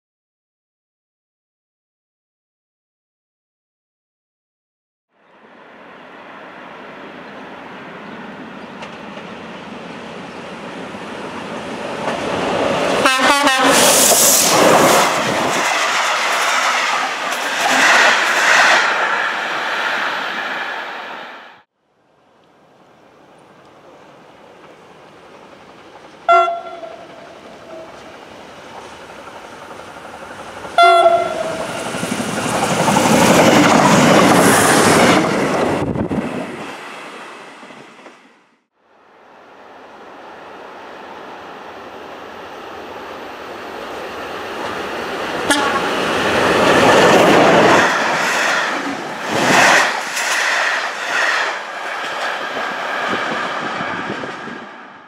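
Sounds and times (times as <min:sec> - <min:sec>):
train passing at speed: 0:05.2 - 0:21.7, 0:22.6 - 0:55.0
train horn blasts: 0:13.0 - 0:13.9, 0:26.3 - 0:28.1, 0:30.8 - 0:31.6, 0:45.4 - 0:45.9.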